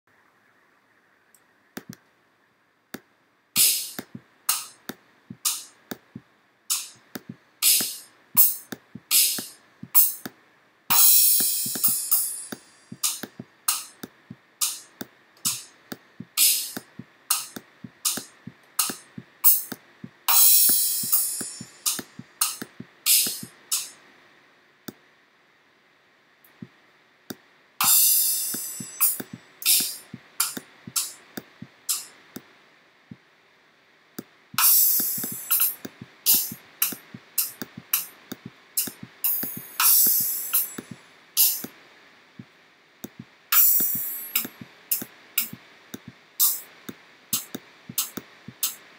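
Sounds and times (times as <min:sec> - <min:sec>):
mouse clicks: 0:01.3 - 0:02.1, 0:02.9 - 0:10.4, 0:11.7 - 0:19.8, 0:21.0 - 0:24.0, 0:28.5 - 0:32.5, 0:34.2 - 0:41.8, 0:44.2 - 0:48.8
sampled drum hits: 0:03.6 - 0:10.3, 0:10.9 - 0:23.9, 0:34.5 - 0:41.7
cymbal crashes ringing: 0:10.9 - 0:13.2, 0:20.3 - 0:22.0, 0:27.8 - 0:30.0, 0:34.6 - 0:36.6, 0:39.2 - 0:41.6, 0:43.6 - 0:44.4.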